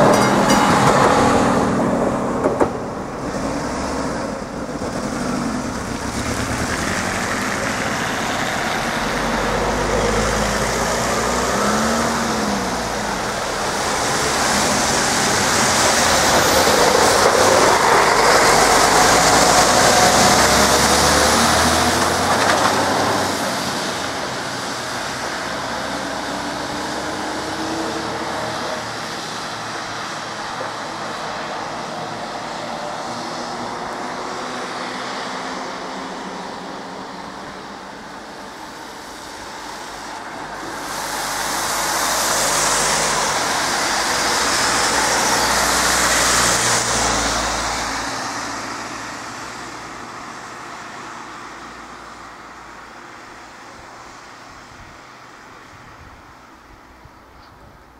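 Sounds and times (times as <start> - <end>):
truck pulling away: 0.0 - 50.3
car tyres hissing on wet road: 1.4 - 57.0.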